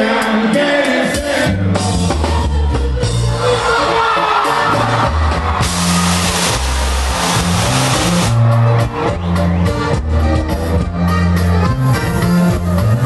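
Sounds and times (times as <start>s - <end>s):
drums: 0.0s - 13.0s
live band music over pa: 0.0s - 13.0s
heavy bass line: 4.7s - 10.9s.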